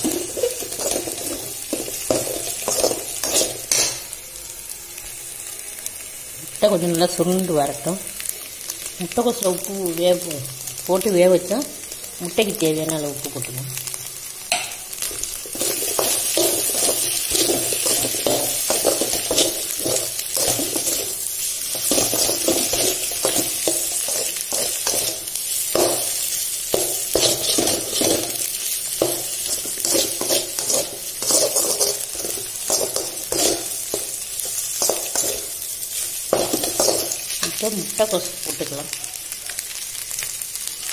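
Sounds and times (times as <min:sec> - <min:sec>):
frying sizzle: 0:00.0 - 0:40.9
metal spatula scraping pan: 0:29.4 - 0:35.4.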